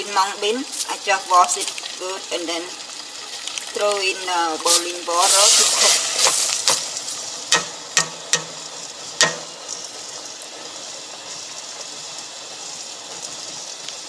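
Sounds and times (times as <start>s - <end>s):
water boiling with hiss: 0.0s - 14.0s
knocks on metal pot: 7.5s - 8.6s, 9.2s - 9.5s.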